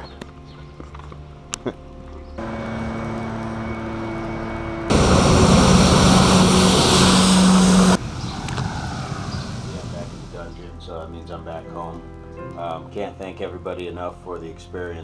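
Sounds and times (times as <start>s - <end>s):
moderate mechanical hum: 1.9s - 8.0s
loud drone with hiss: 2.4s - 10.6s.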